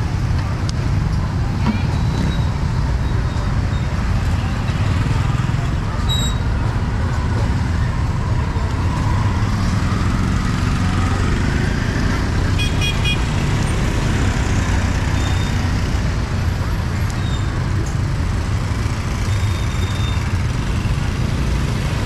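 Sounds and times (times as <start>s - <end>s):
street traffic engine rumble: 0.0s - 22.0s
vehicle horn beeping: 12.6s - 13.3s.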